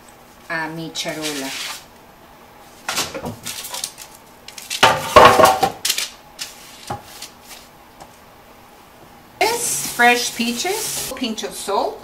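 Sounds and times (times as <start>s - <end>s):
metal baking sheet clattering on wood: 4.8s - 5.8s.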